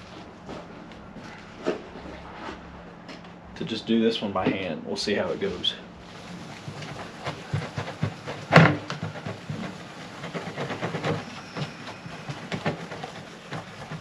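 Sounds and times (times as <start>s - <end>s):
cloth scrubbing on plastic: 5.4s - 14.0s.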